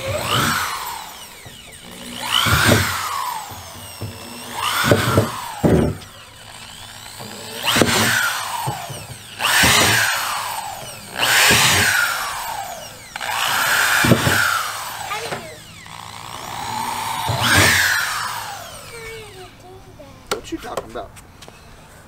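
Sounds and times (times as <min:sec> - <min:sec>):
power drill boring through plastic: 0:00.0 - 0:19.8, 0:21.4 - 0:22.0.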